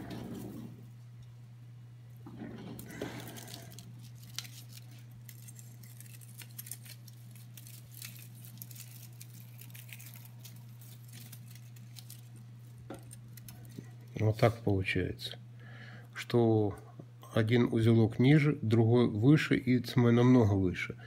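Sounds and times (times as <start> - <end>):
steady low hum: 0.0 - 21.0
plastic strip crinkling and clicking: 3.0 - 14.2.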